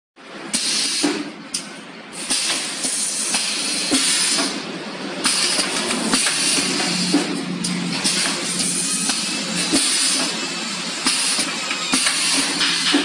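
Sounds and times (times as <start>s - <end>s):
machine metal rattle and clatter: 11.0s - 13.0s.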